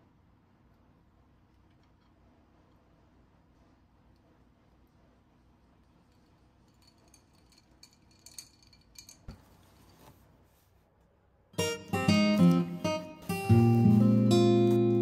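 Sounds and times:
strummed acoustic guitar music: 11.6 - 15.0.

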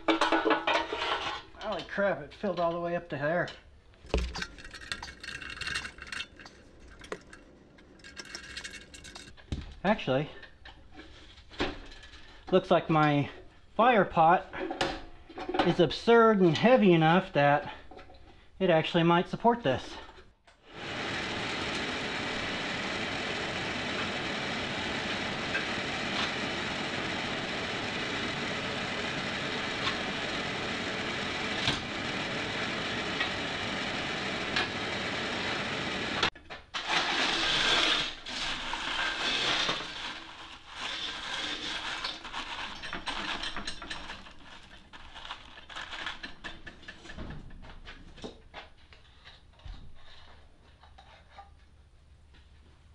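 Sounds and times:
coal clattering: 0.0 - 2.0, 4.0 - 9.6, 36.3 - 48.3
electric blower rushing air: 20.7 - 36.3.

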